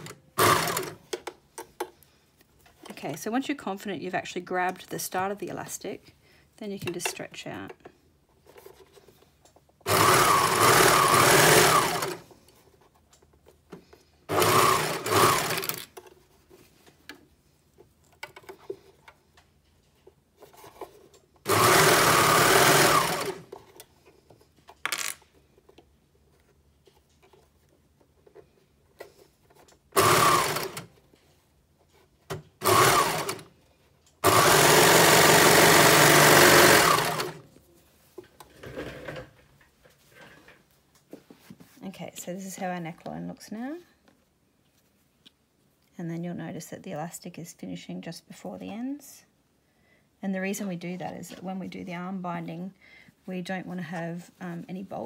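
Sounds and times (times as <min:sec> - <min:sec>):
overlocker stitching: 0:00.0 - 0:01.3, 0:09.9 - 0:12.2, 0:14.3 - 0:16.0, 0:20.5 - 0:23.7, 0:29.5 - 0:30.9, 0:32.6 - 0:33.5, 0:34.2 - 0:37.4.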